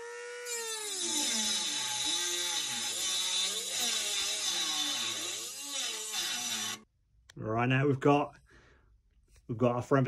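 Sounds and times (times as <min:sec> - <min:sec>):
rotary tool cutting metal: 0:00.0 - 0:06.9.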